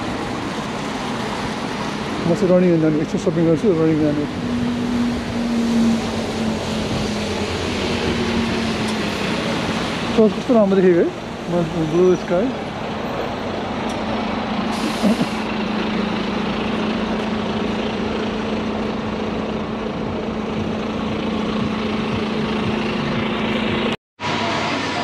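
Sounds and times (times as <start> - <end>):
street traffic: 0.0 - 25.0
large vehicle idling: 10.2 - 25.0
air brake hiss: 14.7 - 15.4.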